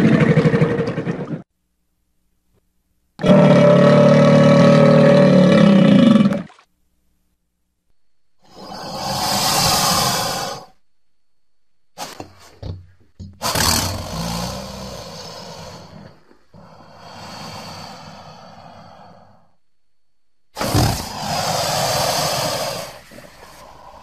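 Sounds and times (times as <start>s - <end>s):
crocodilian harsh calls: 3.2s - 6.6s, 8.5s - 10.8s, 13.4s - 19.4s, 20.6s - 24.0s.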